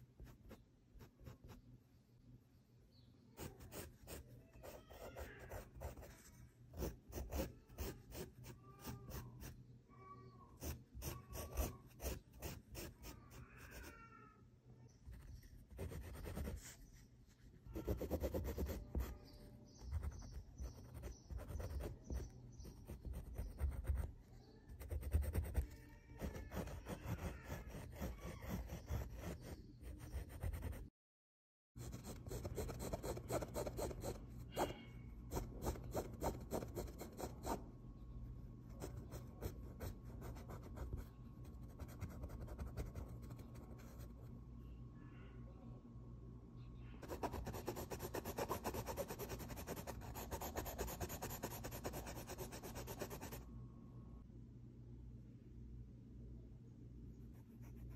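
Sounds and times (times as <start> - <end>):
colored pencil scratching on cloth: 0.0 - 1.7, 3.4 - 9.6, 10.5 - 13.9, 15.1 - 30.9, 31.8 - 37.6, 38.6 - 44.2, 47.0 - 53.4.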